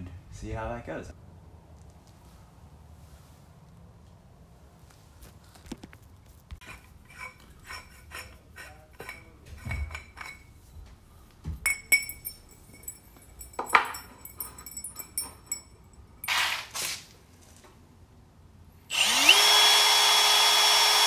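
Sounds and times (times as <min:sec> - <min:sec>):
metal clinking and knocking: 0:06.6 - 0:16.4.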